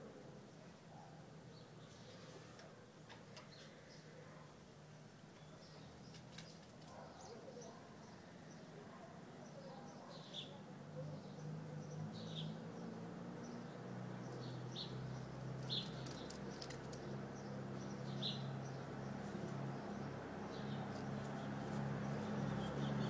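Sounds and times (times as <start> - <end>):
birds chirping: 5.3 - 23.0.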